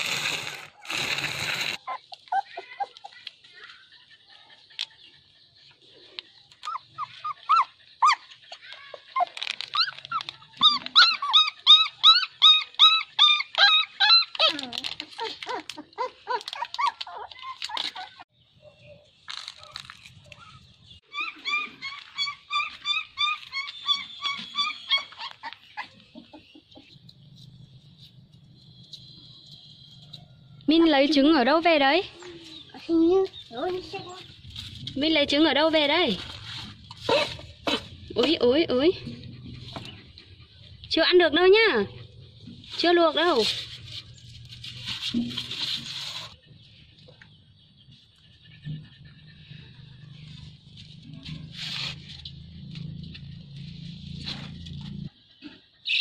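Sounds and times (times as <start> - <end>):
puppies whimpering and yipping: 1.6 - 4.8, 6.5 - 18.3, 20.4 - 27.5.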